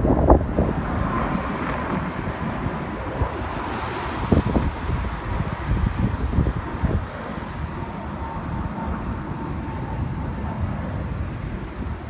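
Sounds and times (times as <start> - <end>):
distant jet rumble with whine: 0.0 - 12.0.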